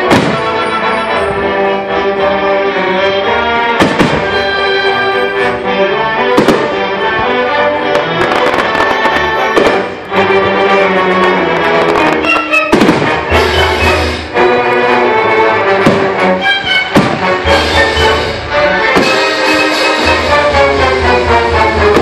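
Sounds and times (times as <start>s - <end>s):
fireworks bangs: 0.0s - 0.7s, 3.8s - 5.5s, 6.3s - 7.0s, 7.9s - 10.1s, 11.2s - 14.3s, 15.7s - 22.0s
music with brass: 0.0s - 22.0s
fireworks crackling: 3.8s - 5.6s, 7.8s - 14.4s, 15.8s - 22.0s.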